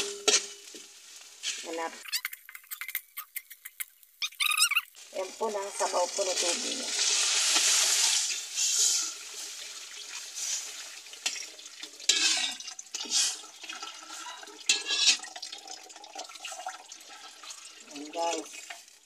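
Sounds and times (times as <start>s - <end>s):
metal spoon knocking a wok: 0.0s - 0.6s
water pouring into a wok: 4.9s - 19.0s.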